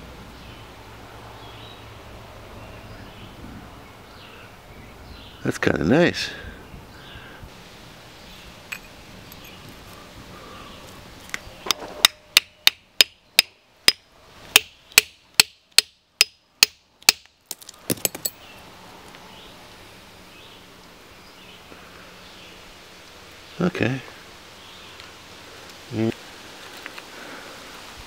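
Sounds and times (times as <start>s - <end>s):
hammer striking metal chisel: 11.7s - 14.0s, 14.6s - 17.3s, 17.9s - 18.4s.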